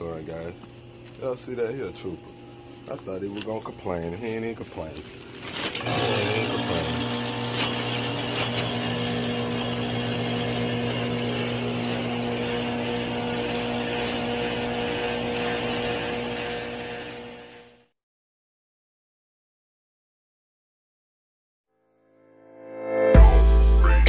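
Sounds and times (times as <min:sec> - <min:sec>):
machine hum: 0:00.0 - 0:17.9.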